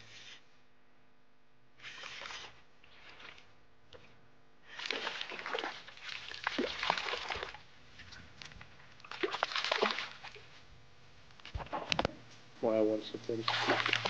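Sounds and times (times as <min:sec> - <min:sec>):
fish splashing at water surface: 0:04.7 - 0:07.7, 0:09.0 - 0:10.5, 0:13.4 - 0:14.0.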